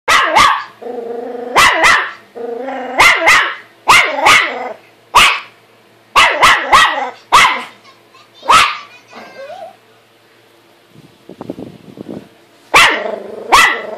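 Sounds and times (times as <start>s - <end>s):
small dog barking: 0.1s - 0.8s, 1.5s - 2.2s, 3.0s - 5.6s, 6.2s - 7.8s, 8.4s - 8.9s, 12.7s - 13.9s
dog growling: 0.8s - 3.3s, 4.0s - 4.8s, 12.8s - 13.9s.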